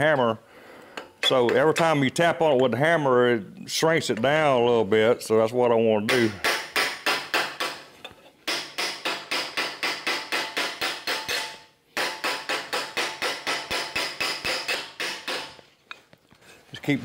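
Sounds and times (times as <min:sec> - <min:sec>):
hammer tapping on metal tube: 0:08.5 - 0:15.6.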